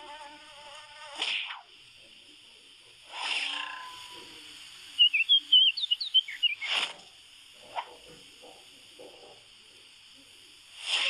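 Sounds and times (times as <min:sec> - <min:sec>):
cartoon whooshes: 0:03.1 - 0:03.8, 0:06.6 - 0:07.0, 0:10.8 - 0:11.0
high rapid chirping twitters: 0:04.8 - 0:07.0.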